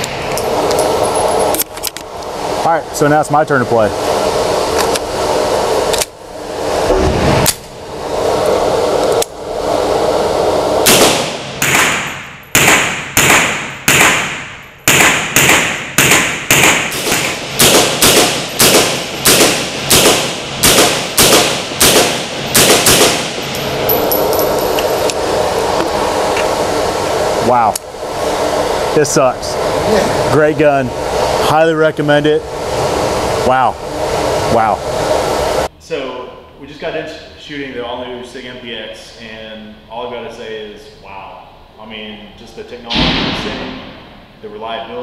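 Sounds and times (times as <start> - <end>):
gunshots echoing indoors: 10.8 - 24.0.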